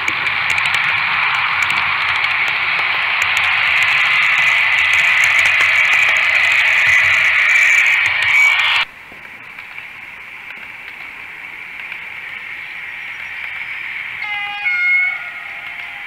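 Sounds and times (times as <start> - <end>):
model train whirring: 0.0 - 8.9, 9.5 - 16.0
short high-pitched call: 14.2 - 16.0.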